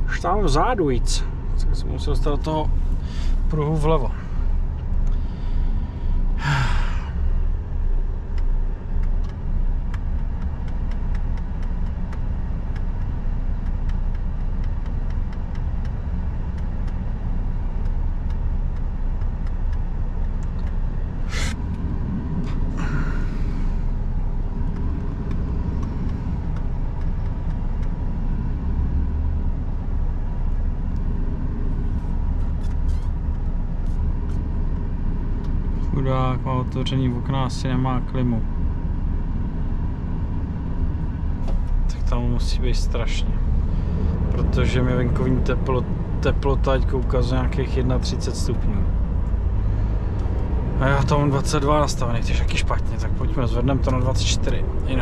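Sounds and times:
truck diesel engine and road rumble: 0.0 - 55.0
short hiss: 21.3 - 21.6.

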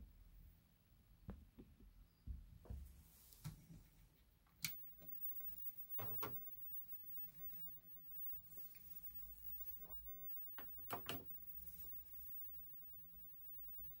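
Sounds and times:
faint clicks and knocks: 4.6 - 14.0
low steady hum: 4.6 - 14.0.

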